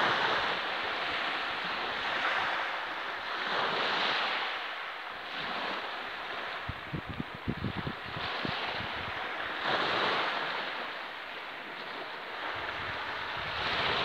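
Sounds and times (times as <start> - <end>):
waves washing onto sand: 0.0 - 14.0
wind buffeting microphone: 5.3 - 10.9, 11.7 - 14.0.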